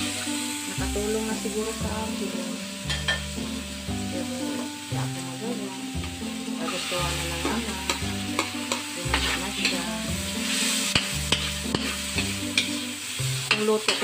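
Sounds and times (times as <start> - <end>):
vegetables sizzling in a wok: 0.0 - 14.0
metal spatula scraping wok: 6.1 - 14.0.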